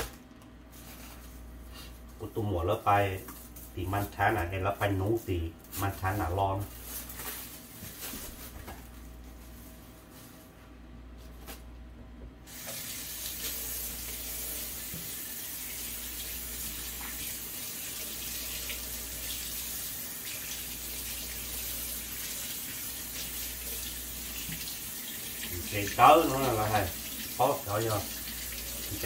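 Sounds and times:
faucet running into metal sink: 12.5s - 29.0s.

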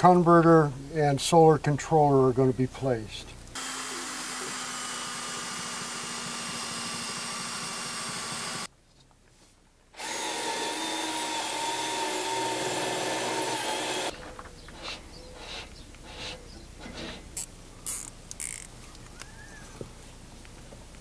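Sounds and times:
power tool motor running: 3.6s - 8.7s, 10.0s - 14.1s.

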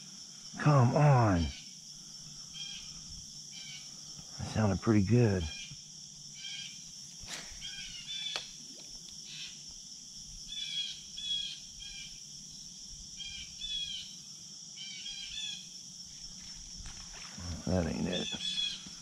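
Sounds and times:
high insect drone: 0.0s - 19.0s
bird chirping: 7.5s - 9.6s, 18.0s - 19.0s.

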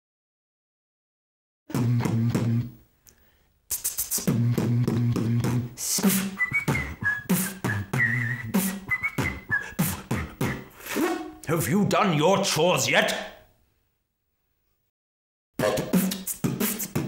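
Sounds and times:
human beatbox: 1.7s - 2.6s, 3.7s - 11.4s, 15.6s - 17.0s
high whistled melody: 5.8s - 11.4s.

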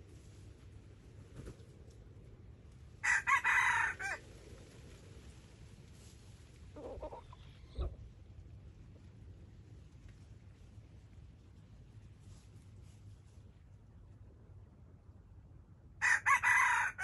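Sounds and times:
rooster crowing: 3.0s - 4.2s, 16.0s - 17.0s.

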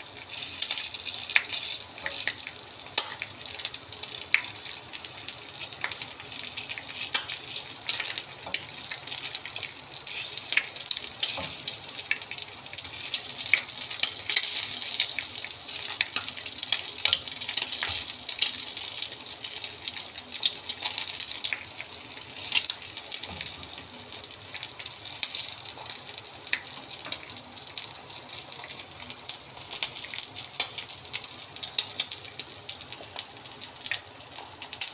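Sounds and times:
oil sizzling in a frying pan: 0.0s - 34.9s.

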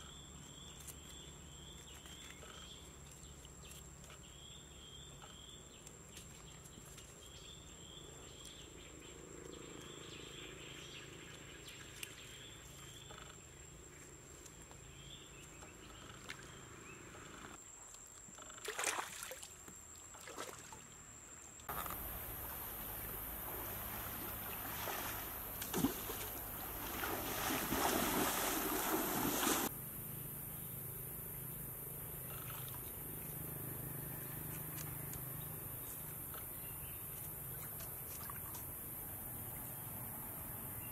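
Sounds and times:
water splashing and sloshing: 17.9s - 29.7s, 37.5s - 38.8s
high insect whine: 21.7s - 40.9s.

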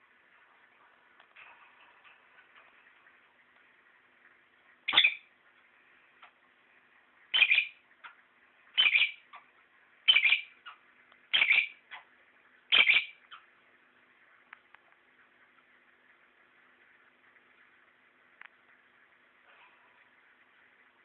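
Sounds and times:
lovebird calling: 4.9s - 5.3s, 7.3s - 7.8s, 8.7s - 12.1s, 12.7s - 13.5s.

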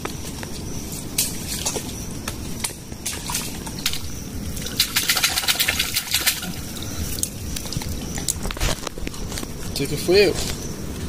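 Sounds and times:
mud squelching and sloshing: 3.0s - 9.6s.

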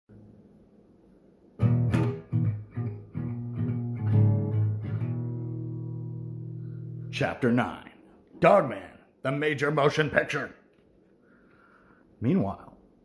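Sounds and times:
guitar plucked and strummed: 1.6s - 7.2s.

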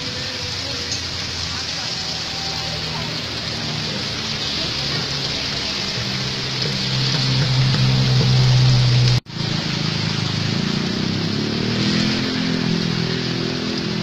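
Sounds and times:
engine running with low hum: 3.0s - 14.0s.

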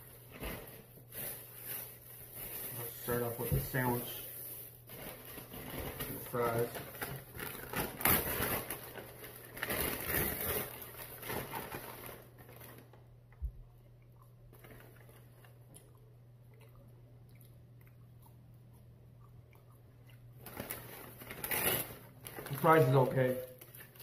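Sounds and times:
low steady hum: 0.0s - 24.0s
crackly chewing: 10.4s - 22.6s.

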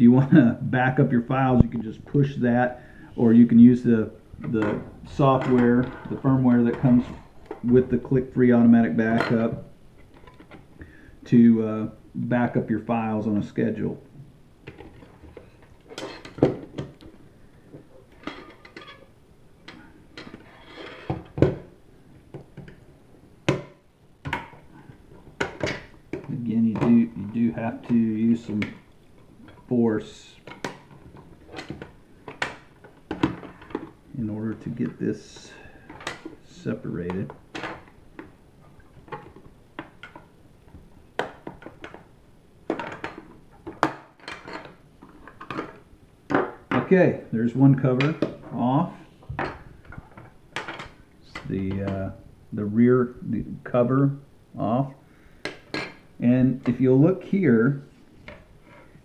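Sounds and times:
irregular clicks and knocks: 19.6s - 27.2s, 30.4s - 34.7s, 37.1s - 46.9s, 49.3s - 52.1s.

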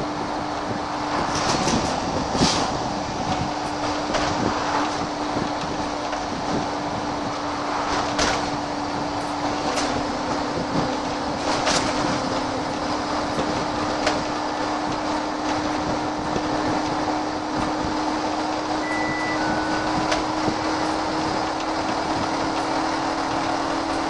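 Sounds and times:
bus engine drone: 0.0s - 24.0s
road noise: 0.0s - 24.0s.

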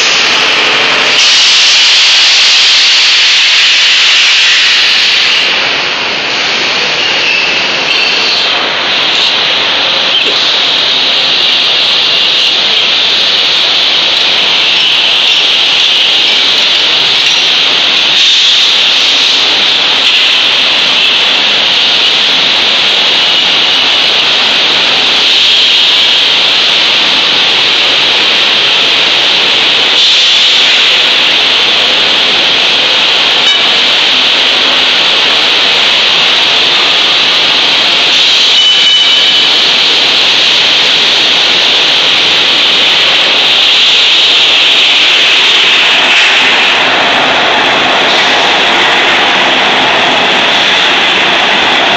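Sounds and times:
foundry machinery hiss: 0.0s - 51.2s.

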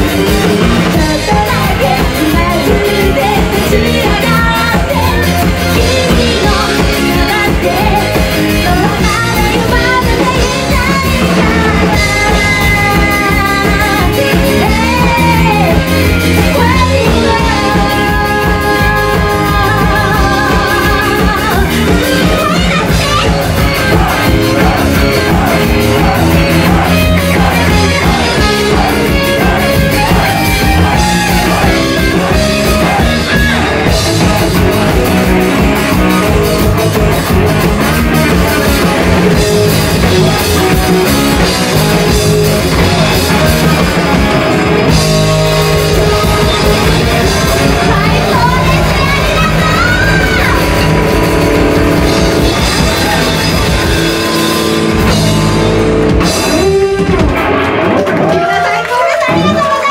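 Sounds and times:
woman singing: 0.0s - 35.0s, 45.8s - 51.0s
electric bass: 0.0s - 59.8s
drum kit: 0.0s - 59.9s
electric guitar: 0.0s - 59.9s.

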